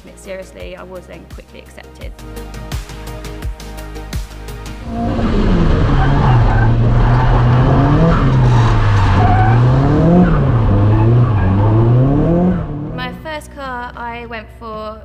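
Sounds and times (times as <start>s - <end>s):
car engine revving: 4.7s - 13.3s
tyres squealing while sliding: 4.8s - 12.4s.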